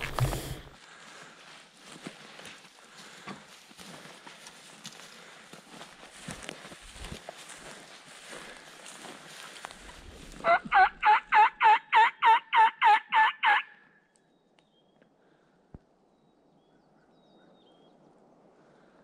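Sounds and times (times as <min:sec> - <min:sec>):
turkey call yelps: 0:10.4 - 0:13.9.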